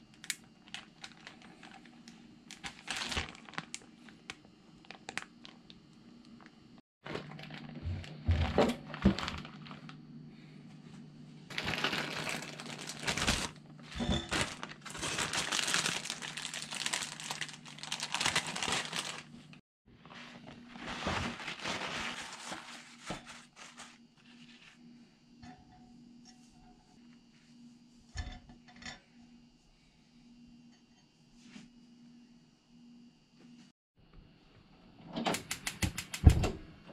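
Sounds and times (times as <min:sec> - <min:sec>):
paper towels and plastic crinkling: 0:00.6 - 0:05.8, 0:07.1 - 0:10.0, 0:11.5 - 0:24.8.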